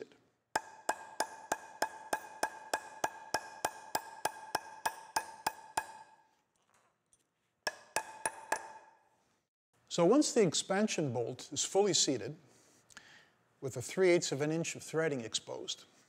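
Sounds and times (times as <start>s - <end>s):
hammer tapping metal bolt: 7.7s - 8.9s.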